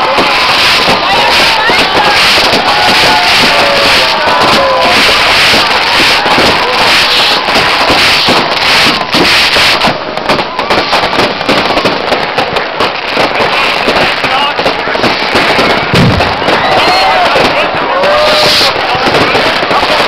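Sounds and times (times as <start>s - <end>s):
firecrackers crackling: 0.0s - 20.0s.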